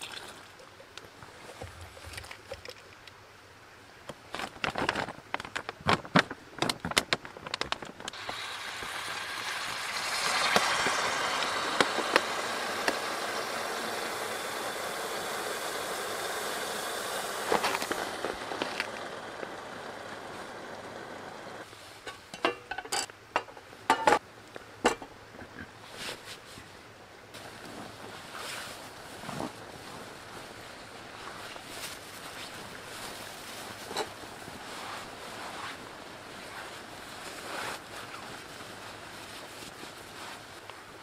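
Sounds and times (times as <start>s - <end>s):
sharp plastic crinkles: 4.1s - 13.3s, 17.4s - 20.4s, 27.4s - 40.9s
plastic pouch rustling and clicking: 4.3s - 8.2s
heater pad fizzing hiss: 8.1s - 22.0s.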